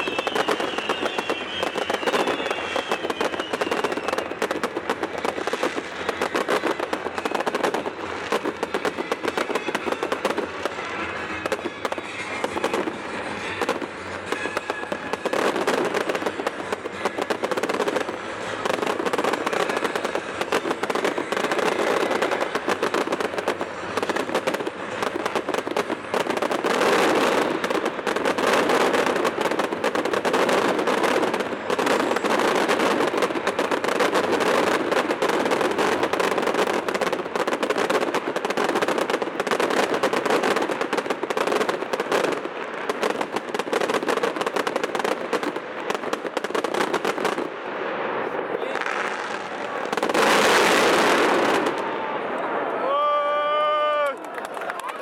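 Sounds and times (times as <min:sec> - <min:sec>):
fireworks bangs and crackles: 0:00.0 - 0:55.0
music playing: 0:00.8 - 0:37.5.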